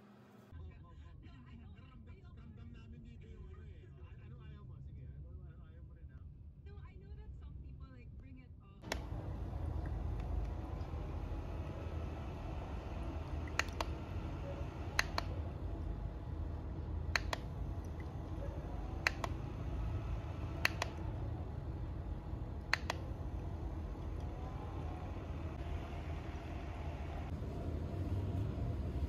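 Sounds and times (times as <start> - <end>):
low rumble: 8.8 - 29.0.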